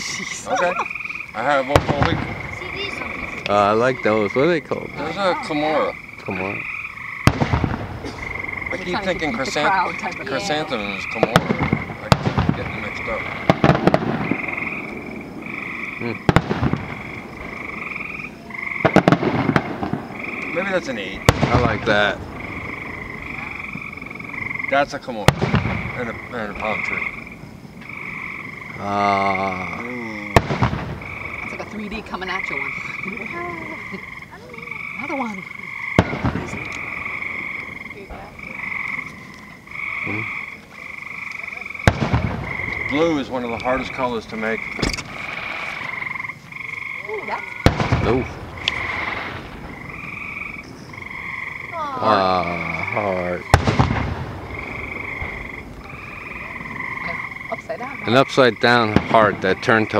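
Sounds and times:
frogs calling in pulsed trills: 0.0 - 53.7, 54.4 - 59.9
distant fireworks bursting: 0.0 - 59.9.

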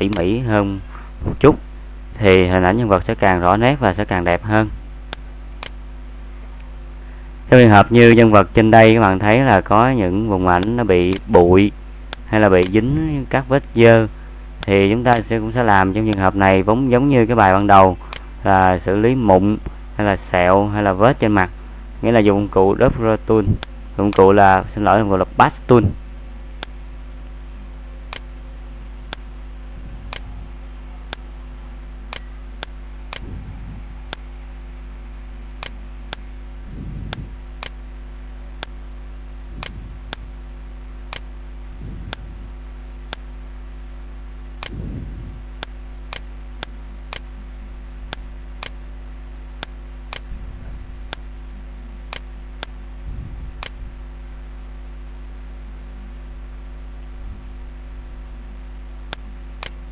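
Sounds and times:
electrical mains hum: 0.0 - 59.9
regular sharp ticks: 10.6 - 11.4, 12.1 - 13.0, 28.0 - 28.4, 29.0 - 29.3, 32.1 - 33.3, 34.0 - 34.3, 35.5 - 36.3, 37.0 - 37.9, 39.5 - 40.4, 41.0 - 41.4, 43.0 - 43.4, 45.4 - 47.4, 48.0 - 48.8, 49.5 - 50.4, 51.0 - 51.4, 52.0 - 52.8, 53.5 - 54.2, 59.1 - 59.9
soft low rumbles: 25.8 - 59.8.

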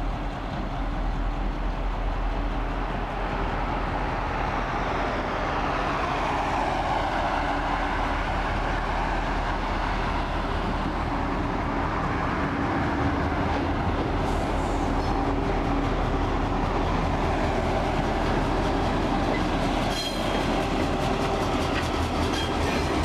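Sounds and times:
diesel locomotive engine drone: 0.0 - 23.0
cars passing on road: 3.0 - 23.0.

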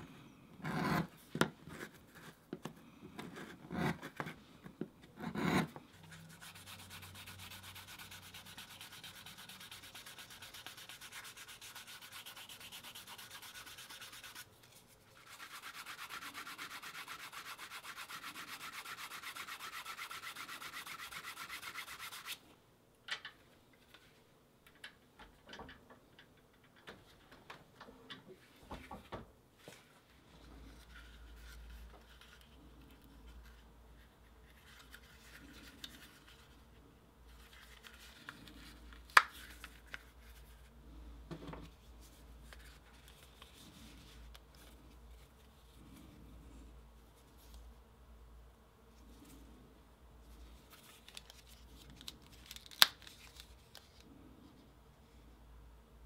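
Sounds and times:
steel tool scraping leather: 5.2 - 5.8.

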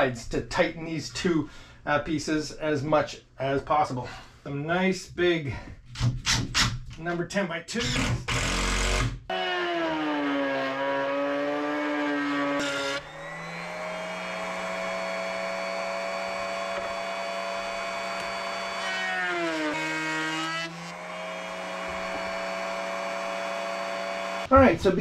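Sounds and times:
router bit cutting wood: 7.8 - 24.5
router motor whine: 7.9 - 24.5.

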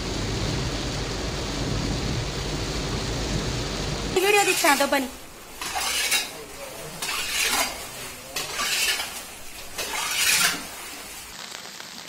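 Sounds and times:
steady hiss: 0.0 - 12.0
metal vessel scraping and splashing: 4.2 - 11.3.

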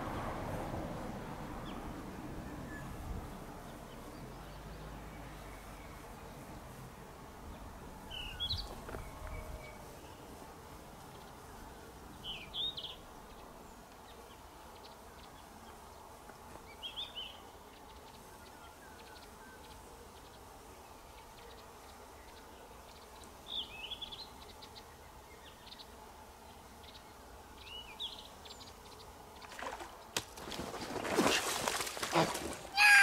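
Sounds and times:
faint outdoor hiss: 0.0 - 33.0.

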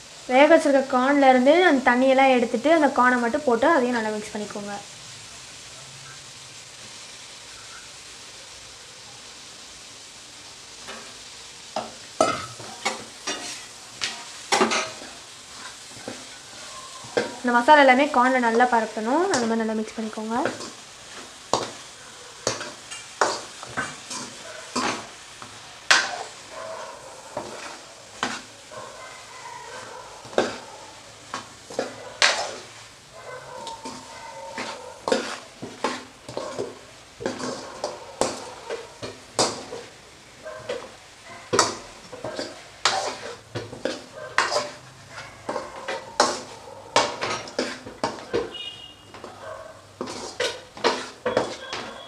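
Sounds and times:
masala sizzling: 0.0 - 52.0
metal spoon scraping pan: 11.8 - 21.8, 22.4 - 25.1, 25.9 - 32.8, 33.4 - 39.9, 40.6 - 49.4, 50.0 - 52.0.

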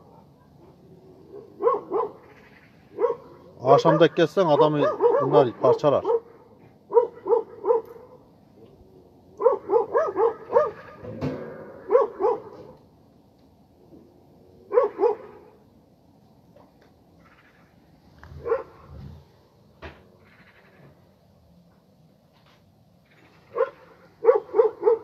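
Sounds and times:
dogs barking: 0.0 - 8.3, 9.4 - 11.1, 11.8 - 12.9, 14.6 - 15.6, 18.3 - 19.0, 23.2 - 25.0.

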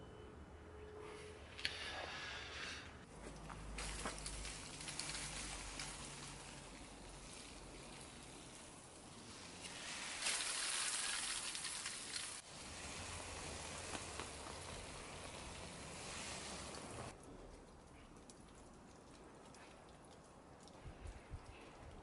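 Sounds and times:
hose spray on soil: 3.6 - 17.2.

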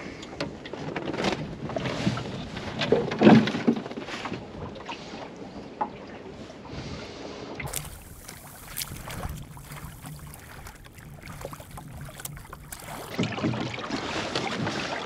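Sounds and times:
water splashing against hull: 7.6 - 14.9.

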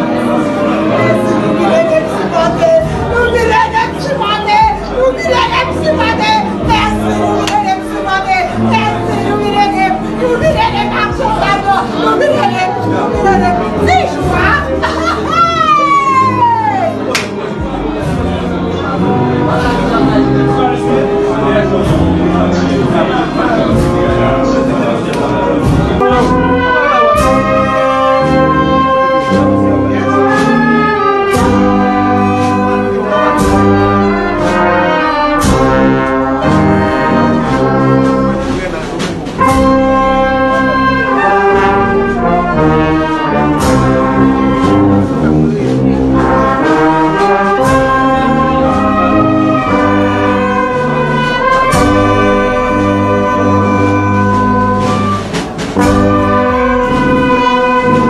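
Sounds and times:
brass band playing slow tune: 0.0 - 58.0
sharp beat struck: 54.7 - 58.0.

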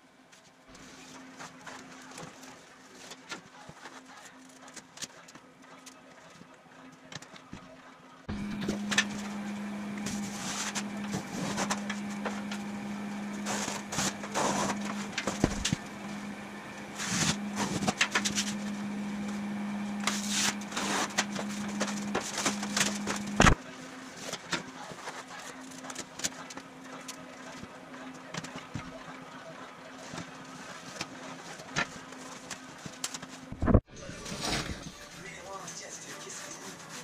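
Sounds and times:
cardboard scraping and rustling: 10.0 - 15.8, 16.9 - 19.4, 20.0 - 23.6, 34.2 - 35.1.

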